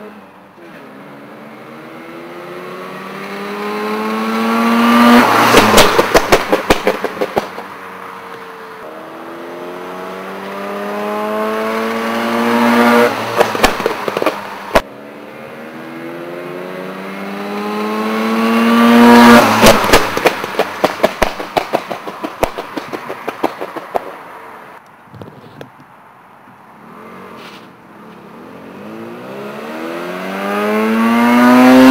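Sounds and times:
rotary engine revving: 0.6s - 7.6s, 8.8s - 14.9s, 15.6s - 24.2s, 26.8s - 31.9s
exhaust backfire pops: 4.9s - 7.7s, 12.7s - 14.9s, 19.0s - 24.2s.

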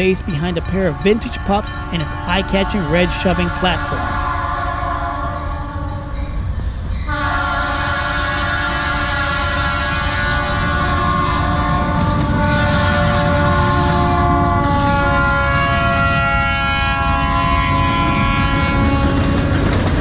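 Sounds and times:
locomotive air horn blast: 0.0s - 6.2s, 7.1s - 19.4s
engine and wheels rumble: 17.5s - 20.0s.

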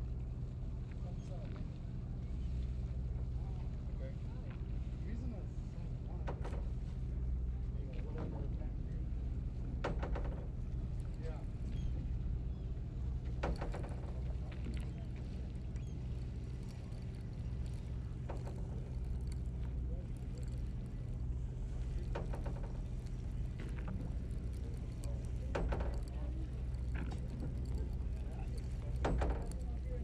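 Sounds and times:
boat engine humming: 0.0s - 30.0s
people talking: 3.4s - 6.3s, 7.6s - 9.0s, 11.2s - 12.1s, 19.7s - 21.0s, 23.6s - 30.0s.

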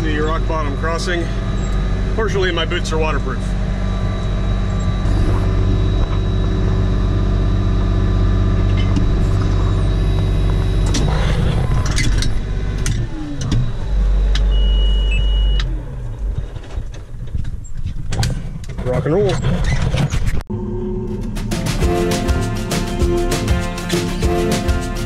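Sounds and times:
tractor engine running: 0.0s - 15.1s
deep low rumble: 0.0s - 18.7s
high tone: 20.5s - 25.0s.

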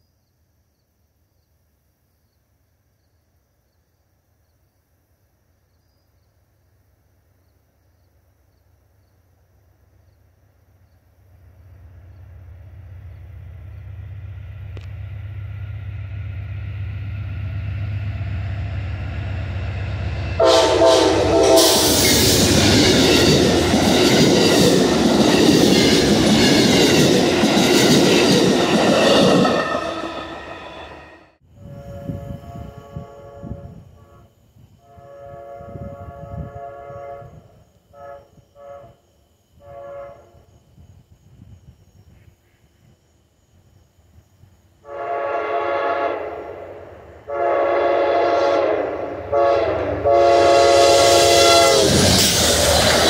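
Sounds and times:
train rumbling past on rails: 11.2s - 39.0s, 43.6s - 53.0s
train horn blowing: 20.0s - 27.0s, 29.0s - 39.0s, 39.6s - 40.6s, 44.8s - 52.4s.

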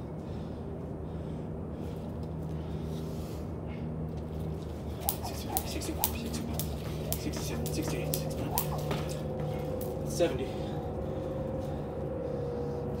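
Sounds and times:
steady low hum: 0.0s - 13.0s
jump rope slapping concrete: 4.6s - 10.1s.

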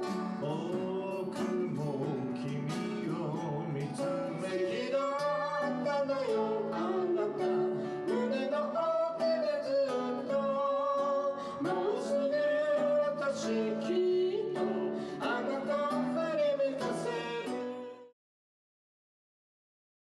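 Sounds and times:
plucked acoustic guitar: 0.0s - 18.1s
person singing: 0.0s - 18.2s.

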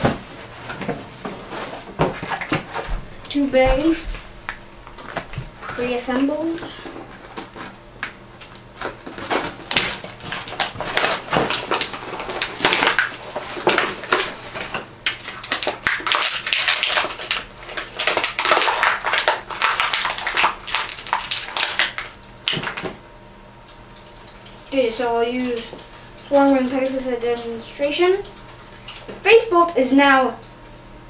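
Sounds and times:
plastic blister packaging crackling: 2.0s - 23.0s.

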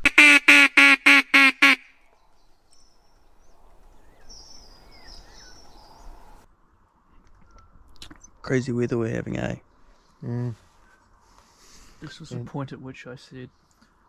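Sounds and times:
duck call quacks: 0.0s - 1.9s
faint bird chirps: 2.1s - 6.5s, 7.3s - 8.5s.

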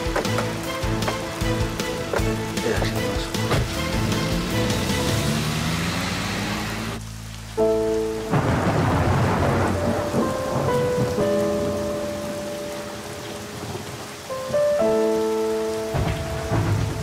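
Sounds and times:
background music score: 0.0s - 17.0s
heavy rain: 0.0s - 17.0s
thunder: 8.3s - 11.2s, 15.9s - 17.0s.

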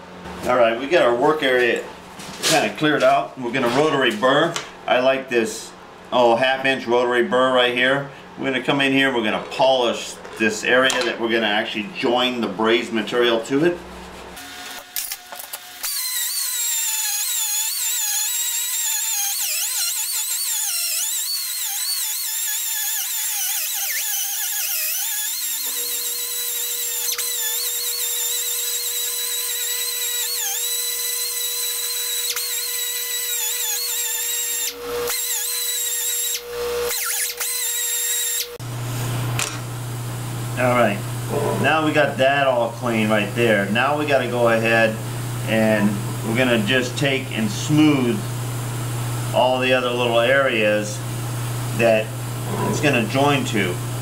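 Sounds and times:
die grinder grinding metal: 14.4s - 38.6s, 51.7s - 53.8s.

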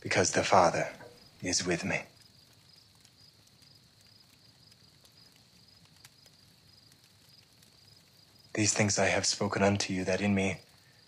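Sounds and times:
faint crickets chirping: 0.0s - 11.0s.

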